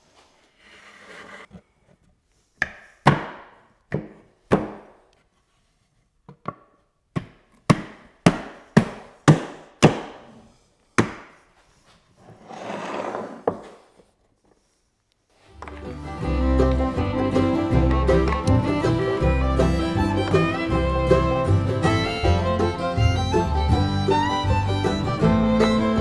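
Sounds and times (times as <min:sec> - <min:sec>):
wooden frame scraping on workbench: 0:00.5 - 0:01.6, 0:12.2 - 0:14.0.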